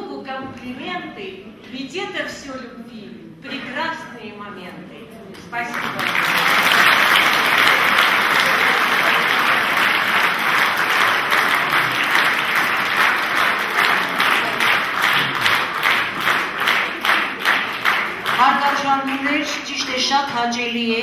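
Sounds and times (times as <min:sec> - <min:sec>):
audience applauding: 0:05.7 - 0:19.7.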